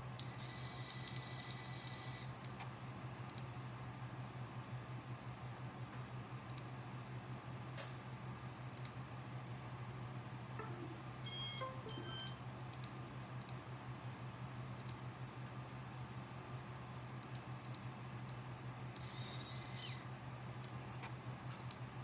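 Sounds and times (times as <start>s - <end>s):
steady low hum: 2.4s - 19.0s
computer mouse clicking: 6.5s - 6.7s, 8.8s - 9.0s, 14.8s - 15.0s, 21.6s - 21.8s
high-pitched whine: 10.6s - 12.5s.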